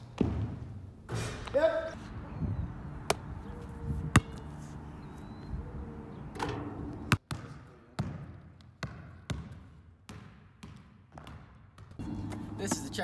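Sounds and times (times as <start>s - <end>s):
basketball bouncing on asphalt: 0.2s - 0.7s, 3.0s - 4.5s, 7.0s - 13.0s
volleyball bouncing on gym floor: 7.0s - 13.0s.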